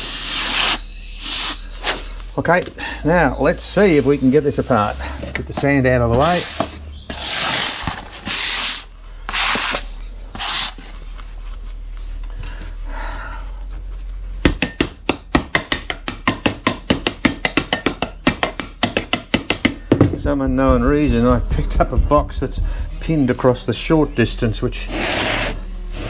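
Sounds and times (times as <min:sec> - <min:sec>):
hand brush sweeping sand: 0:24.9 - 0:26.0.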